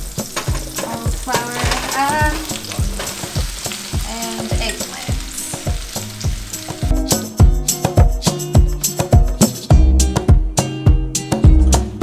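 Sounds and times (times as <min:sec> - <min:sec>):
vegetables sizzling in oil: 0:00.0 - 0:07.4
background music with beat: 0:00.0 - 0:12.0.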